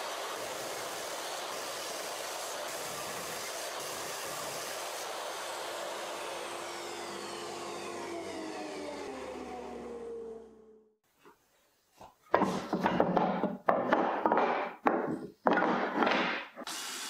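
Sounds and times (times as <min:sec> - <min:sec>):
table saw cutting wood: 0:00.0 - 0:11.0
saw motor spinning down: 0:05.0 - 0:11.0.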